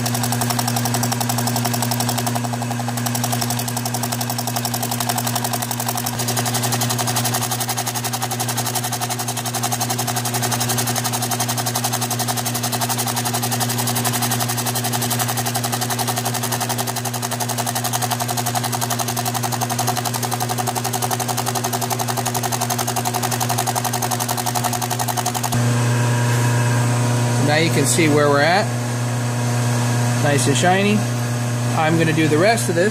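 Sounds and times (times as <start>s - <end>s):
cutter rattling on metal: 0.0s - 25.6s
milling machine motor hum: 0.0s - 32.8s.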